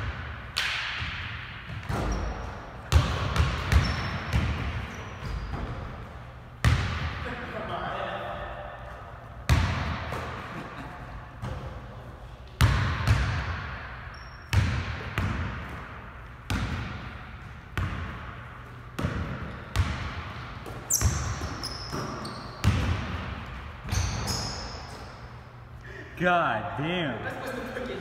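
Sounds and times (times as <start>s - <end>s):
sneaker squeaks on hardwood: 1.9s - 2.6s, 3.7s - 6.0s, 20.7s - 22.9s, 23.8s - 25.3s.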